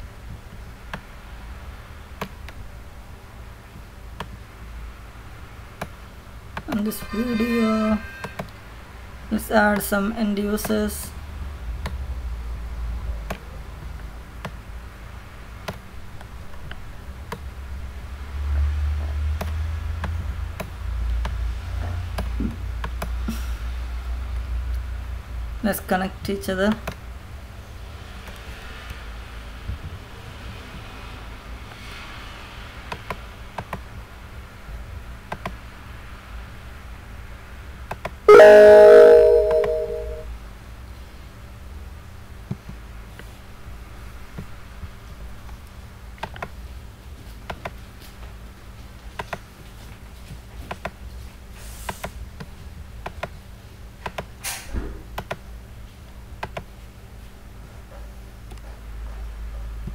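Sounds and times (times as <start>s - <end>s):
computer alert chime: 38.3s - 40.3s.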